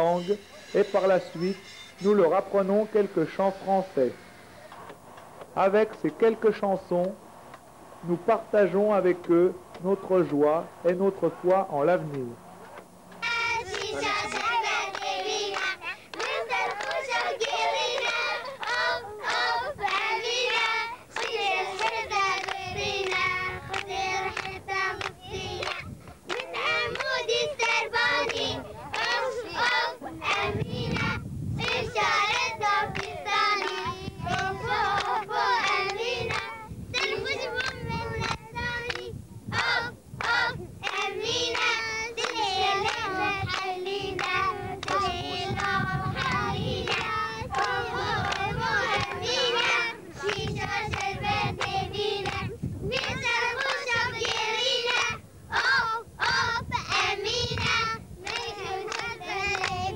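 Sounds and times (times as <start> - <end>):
children singing in unison: 13.2 - 59.9.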